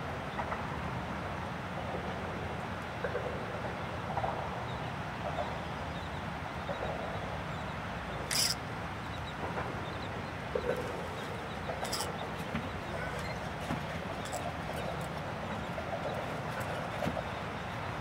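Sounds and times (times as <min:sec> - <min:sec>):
steady low background noise: 0:00.0 - 0:18.0
faint bird calls: 0:08.1 - 0:15.0.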